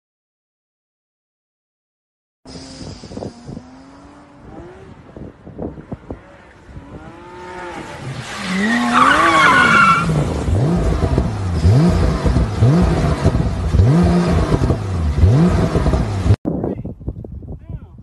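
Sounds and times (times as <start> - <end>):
car engine revving in blips: 2.5 - 16.4
squealing whine: 6.9 - 10.2.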